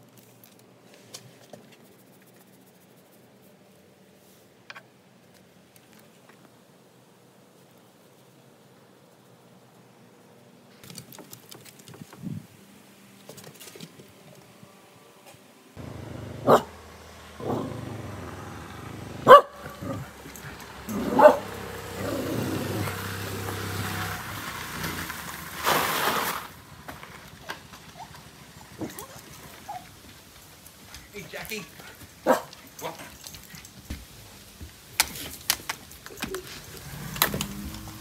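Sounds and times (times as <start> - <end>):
dog barking: 15.8 - 18.4, 19.2 - 21.6, 32.2 - 32.6
low hum: 15.8 - 23.6.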